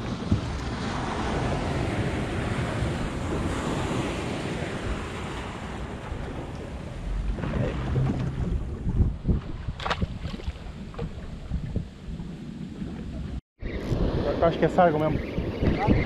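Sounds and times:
sea surf on rocky shore: 0.0 - 9.8
wind buffeting microphone: 0.0 - 16.0.

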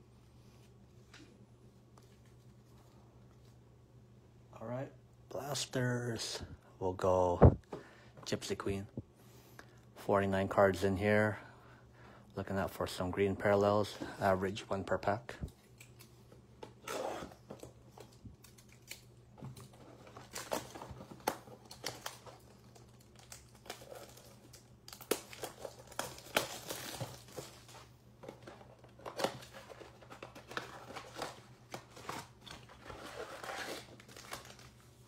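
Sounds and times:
plastic shrink wrap crinkling: 19.7 - 35.0.

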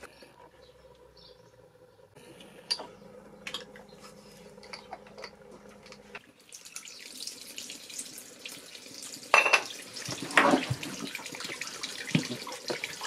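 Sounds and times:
water trickling and splashing: 5.8 - 13.0.

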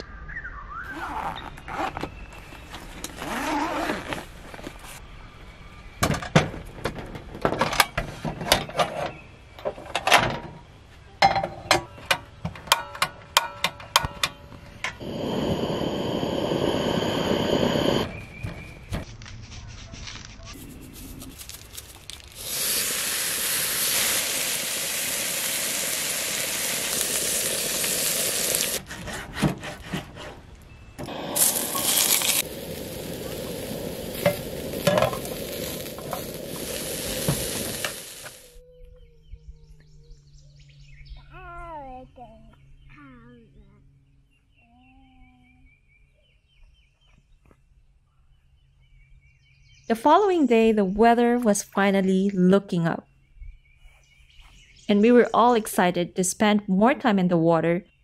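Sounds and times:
gas stove burner running: 14.9 - 18.1, 31.0 - 38.5
meat sizzling in a pan: 22.4 - 28.8, 31.1 - 38.5.

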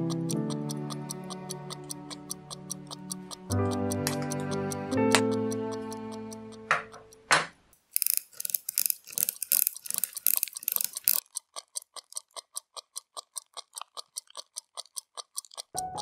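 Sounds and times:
watch ticking: 0.0 - 16.0
watch winding ratchet clicks: 7.8 - 15.8.

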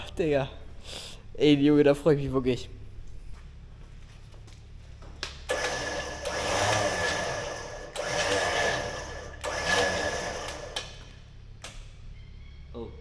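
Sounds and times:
winch motor whining: 5.4 - 11.3.

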